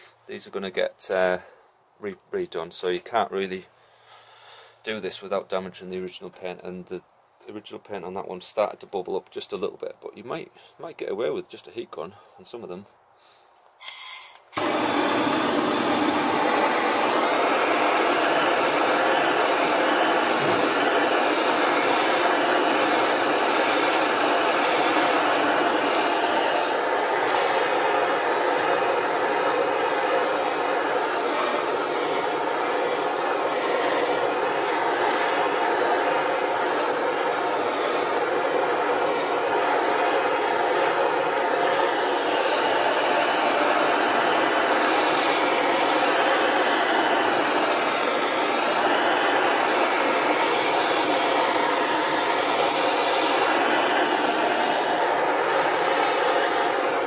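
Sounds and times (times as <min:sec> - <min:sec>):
blowtorch flame hissing: 0:13.9 - 0:57.0.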